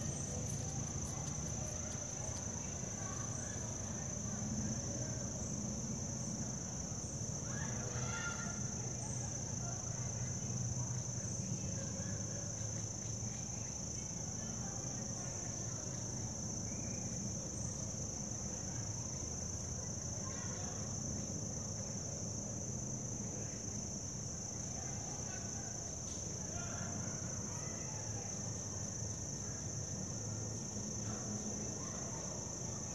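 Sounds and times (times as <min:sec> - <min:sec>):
high-pitched insect chorus: 0:00.0 - 0:32.9
low background hum: 0:00.0 - 0:32.9.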